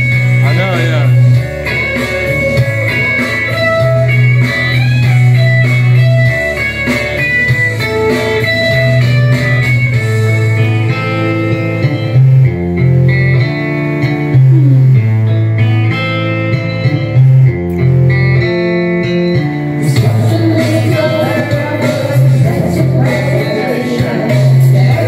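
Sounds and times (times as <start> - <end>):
guitar-led karaoke backing track: 0.0 - 25.0
woman singing into microphone: 19.8 - 25.0.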